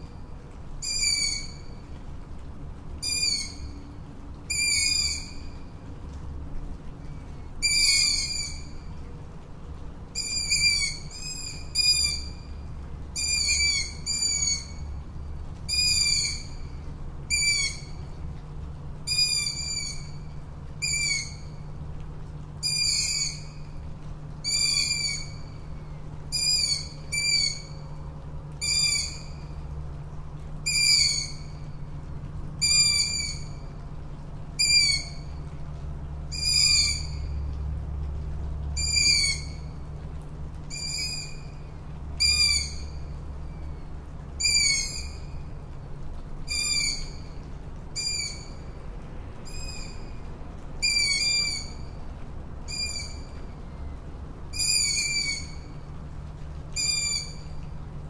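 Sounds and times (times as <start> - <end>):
owl calling: 4.5 - 5.4, 7.6 - 8.7, 10.2 - 12.3, 13.2 - 14.8, 17.3 - 18.0, 20.8 - 21.5, 22.6 - 23.6, 24.4 - 25.5, 26.3 - 27.8, 28.6 - 29.4, 30.7 - 31.6, 32.6 - 33.6, 34.6 - 35.3, 36.3 - 37.3, 38.8 - 39.6, 40.7 - 41.6, 42.2 - 43.6, 44.4 - 45.4, 46.5 - 47.4, 48.0 - 48.6, 49.5 - 50.1, 50.8 - 51.9, 52.7 - 53.4, 54.5 - 55.8, 56.8 - 57.5.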